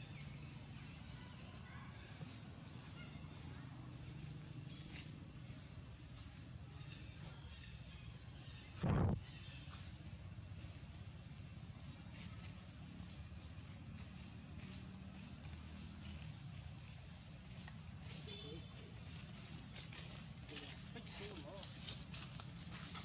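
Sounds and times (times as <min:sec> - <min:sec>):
brief thump: 0:08.8 - 0:09.2.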